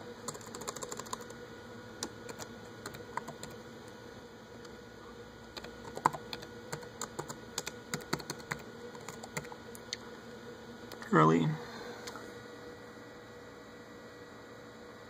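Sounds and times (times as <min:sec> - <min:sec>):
laptop keyboard typing: 0:00.3 - 0:01.4, 0:02.0 - 0:03.6, 0:05.5 - 0:09.6.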